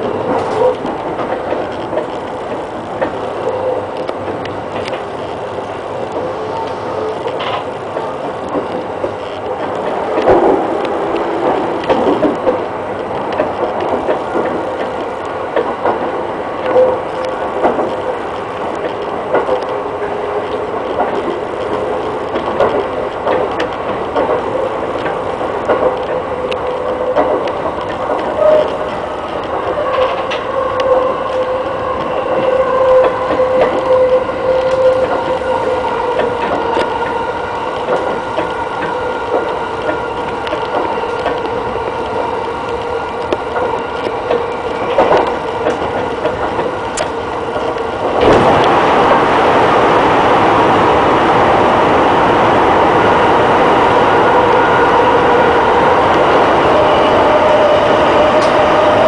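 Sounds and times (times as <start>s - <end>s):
train wheels clicking over rail joints: 0.0s - 49.3s.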